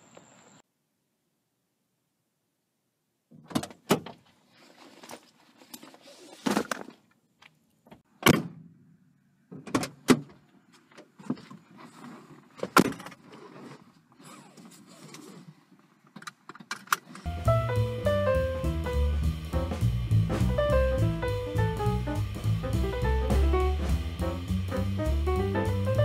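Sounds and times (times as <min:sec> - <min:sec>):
rustling: 0:04.2 - 0:07.1, 0:10.7 - 0:16.1.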